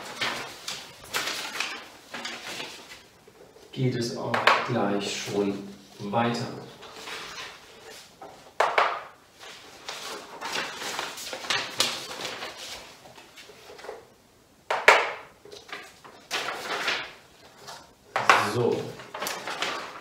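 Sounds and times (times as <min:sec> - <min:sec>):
paper cards rustling: 0:00.0 - 0:03.7, 0:05.0 - 0:14.1, 0:15.4 - 0:20.0.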